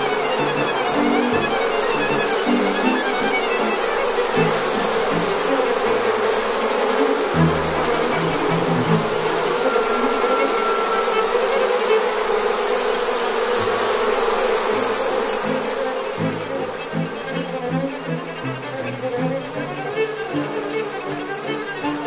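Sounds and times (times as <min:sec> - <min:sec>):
bee swarm buzzing: 0:00.0 - 0:22.0.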